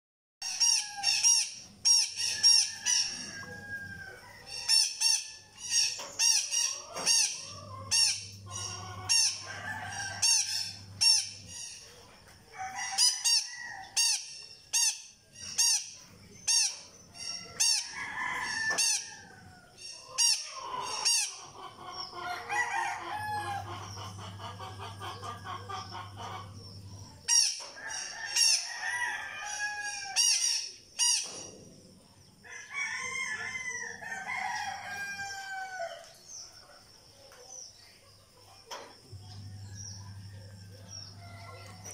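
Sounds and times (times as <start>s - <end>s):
parrot high-pitched chirps: 0.4s - 3.0s, 4.7s - 9.5s, 10.2s - 11.8s, 13.0s - 17.8s.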